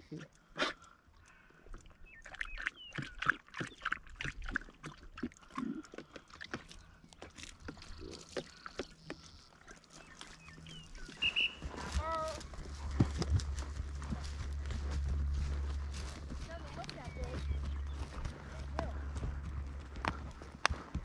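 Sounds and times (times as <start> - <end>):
dog lapping water: 0.4 - 16.1.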